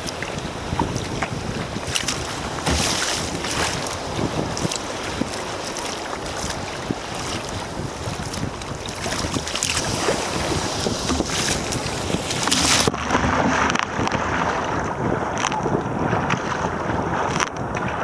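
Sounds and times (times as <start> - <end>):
choppy sea against kayak: 0.0 - 18.0
wave breaking over kayak: 0.0 - 18.0
wind buffeting microphone: 0.0 - 18.0.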